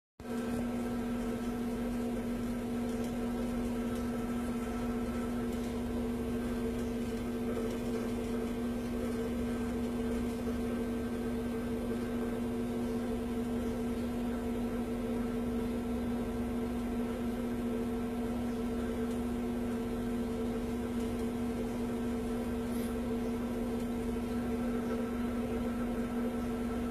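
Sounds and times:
steady mechanical hum: 0.2 - 26.9.

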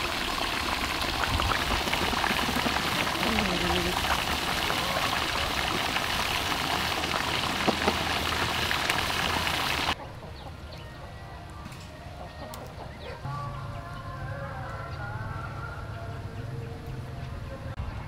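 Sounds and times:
wood fire crackling: 0.0 - 10.0.

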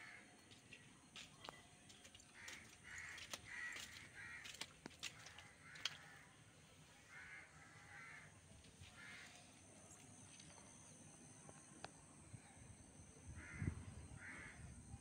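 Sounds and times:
crows cawing: 0.0 - 0.3, 2.1 - 6.4, 7.1 - 9.5, 13.4 - 14.7.

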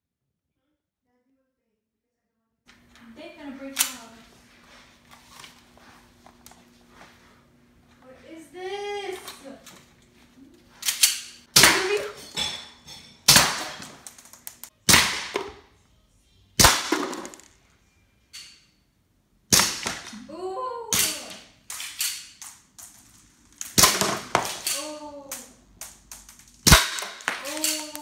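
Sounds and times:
bb pistol shots cracking: 11.0 - 12.1, 13.3 - 14.1, 14.8 - 15.6, 16.6 - 17.5, 19.5 - 20.2, 23.6 - 24.8, 26.6 - 28.0.

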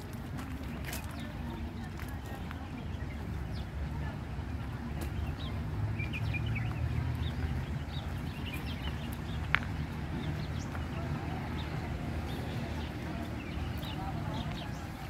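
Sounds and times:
small birds chirping: 0.3 - 15.0.

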